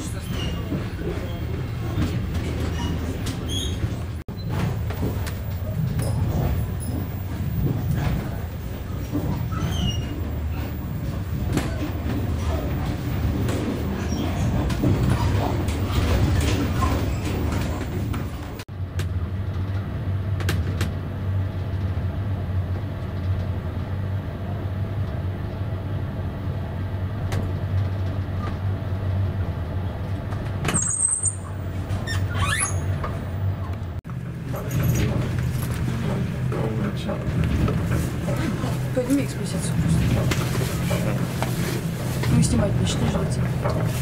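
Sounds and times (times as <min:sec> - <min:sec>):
train rumble and hum: 0:00.0 - 0:44.0
brief high squeal: 0:30.8 - 0:31.5.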